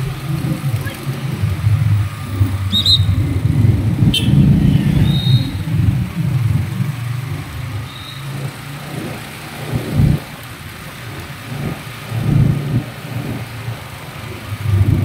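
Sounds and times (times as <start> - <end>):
wind on microphone: 0.0 - 7.4
motorcycle engine rumbling: 0.0 - 15.0.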